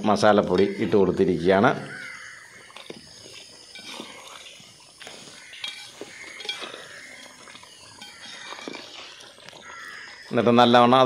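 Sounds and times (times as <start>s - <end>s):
metal ladle scraping cooking pot: 3.6s - 4.4s, 5.5s - 9.1s.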